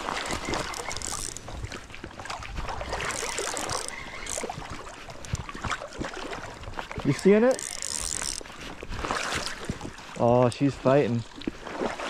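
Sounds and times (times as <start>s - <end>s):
fishing reel clicking: 0.0s - 1.6s, 2.9s - 5.4s, 7.0s - 8.5s
river water running: 0.0s - 12.0s.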